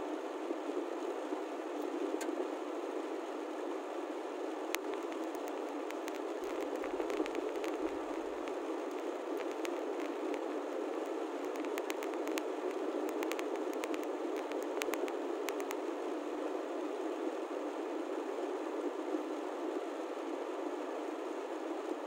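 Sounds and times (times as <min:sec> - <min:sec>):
light clicks: 0:04.8 - 0:10.4, 0:11.4 - 0:15.8.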